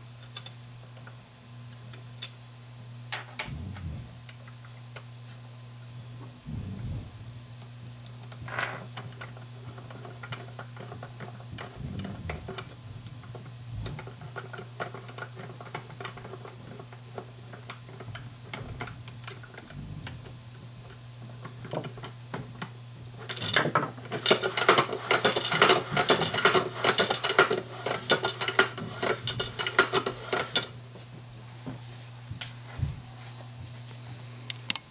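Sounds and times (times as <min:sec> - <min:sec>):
fast clattering rattle of parts: 0:23.3 - 0:30.7.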